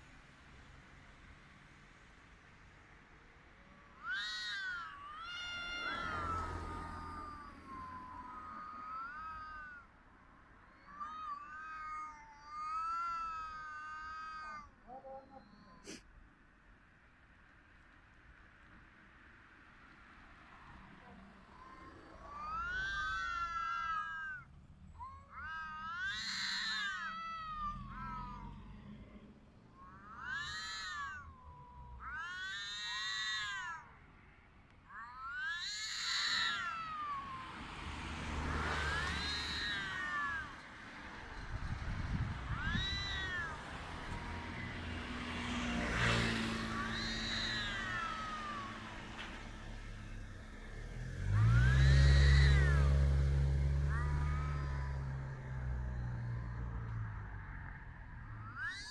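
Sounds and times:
car passing: 0.0s - 14.6s, 17.7s - 58.9s
cats yowling: 3.6s - 16.1s, 20.8s - 33.9s, 34.8s - 58.9s.

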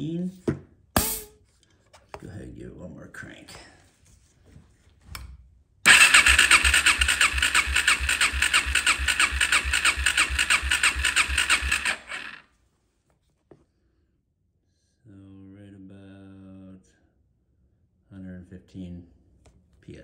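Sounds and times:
electric starter cranking engine: 5.9s - 12.5s.

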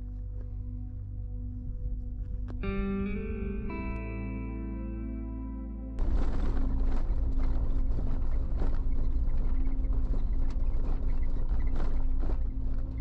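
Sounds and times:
low engine hum: 0.0s - 13.0s
tyre and road rumble: 6.0s - 13.0s
vehicle knocks and rattles: 6.0s - 13.0s.

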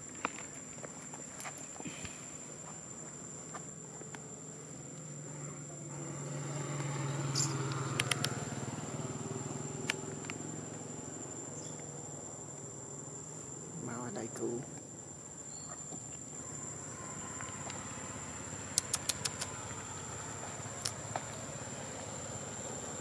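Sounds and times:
insects droning: 0.0s - 23.0s
sharp clicks: 7.4s - 8.4s, 18.7s - 19.6s.

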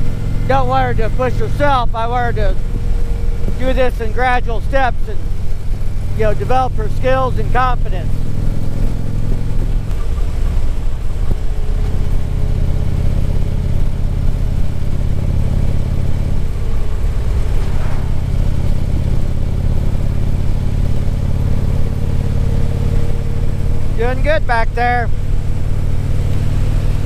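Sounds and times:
motorcycle engine running: 0.0s - 27.0s
road noise: 0.0s - 27.0s
wind noise: 16.4s - 20.6s.

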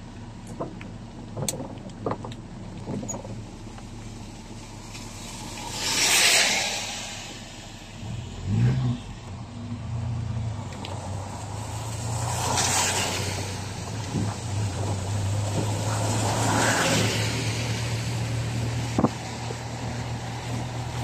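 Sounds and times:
car engine hum: 0.0s - 21.0s
tyre noise on wet road: 0.0s - 21.0s
wet hiss: 5.2s - 8.4s.

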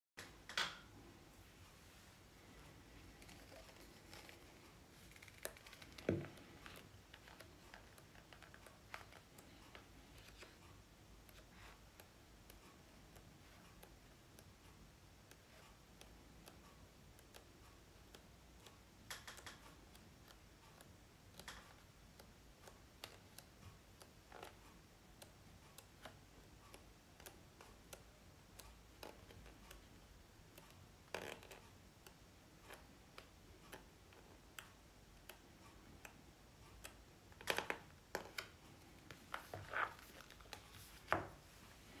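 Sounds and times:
magazine pages turning: 39.1s - 41.2s.

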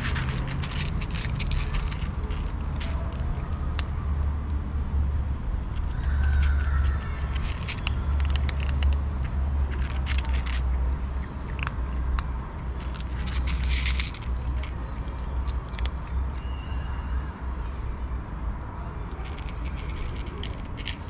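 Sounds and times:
cats crunching dry kibble: 0.0s - 4.6s, 5.8s - 16.5s, 19.0s - 21.0s
steady low rumble: 0.0s - 16.4s.

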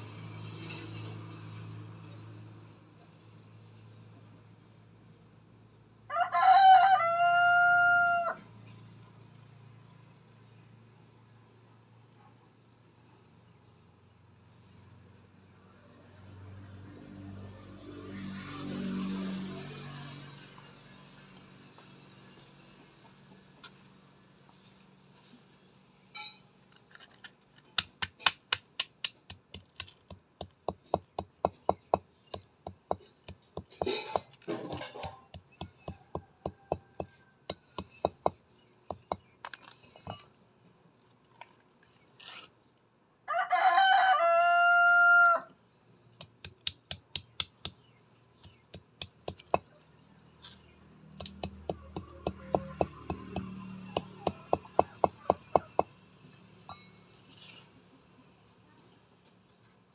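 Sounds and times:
rooster crowing: 6.1s - 8.4s, 43.3s - 45.5s.

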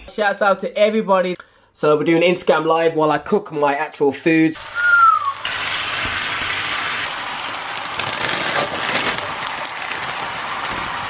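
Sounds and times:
food sizzling in a hot wok: 4.6s - 11.0s.

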